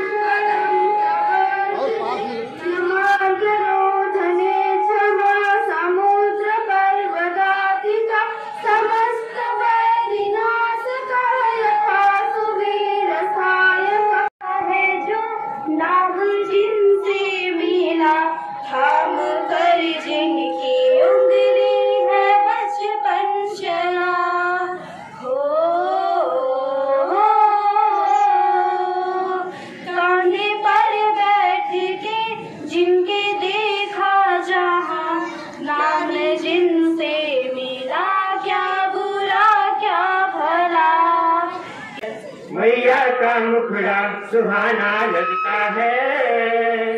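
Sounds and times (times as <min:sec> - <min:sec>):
girls singing through a pa: 0:00.0 - 0:42.3.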